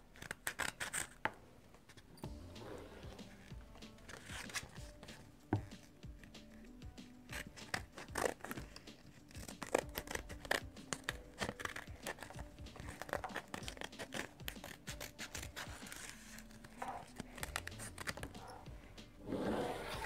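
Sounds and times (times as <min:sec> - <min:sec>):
scissors snipping paper: 0:00.0 - 0:01.4, 0:03.3 - 0:18.6
paper rustling: 0:03.0 - 0:06.7, 0:07.3 - 0:18.7.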